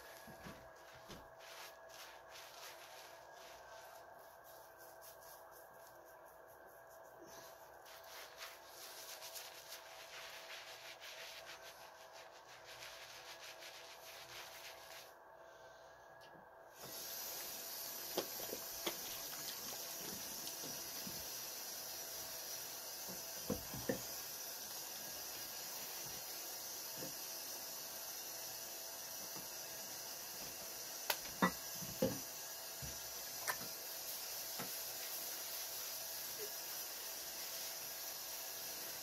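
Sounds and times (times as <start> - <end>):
hands scrubbing lather into beard: 0.1 - 15.1.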